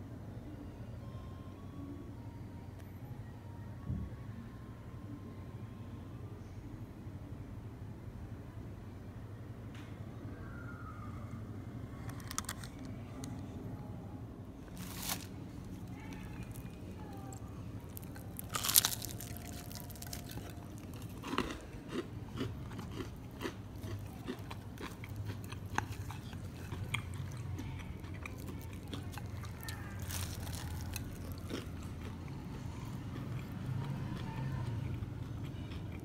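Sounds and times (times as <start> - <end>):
fried chicken crunching and crackling: 12.0 - 13.4, 14.7 - 36.0.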